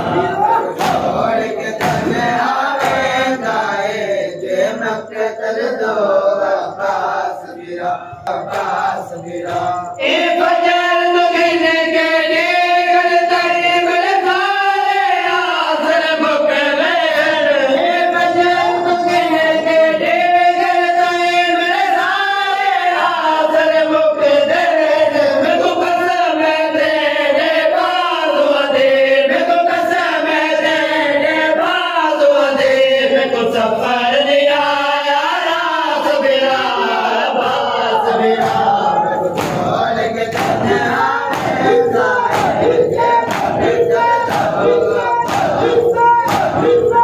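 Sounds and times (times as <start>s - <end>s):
chest-beating slaps: 0.0s - 3.2s, 38.4s - 47.0s
men chanting a lament: 0.0s - 47.0s.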